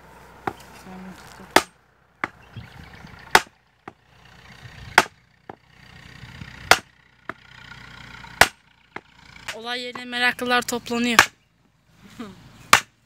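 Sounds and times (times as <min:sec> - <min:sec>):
hammer striking wooden post: 0:01.5 - 0:02.4, 0:03.3 - 0:04.0, 0:04.9 - 0:05.6, 0:06.6 - 0:07.4, 0:08.4 - 0:10.1, 0:11.2 - 0:11.4, 0:12.7 - 0:13.0.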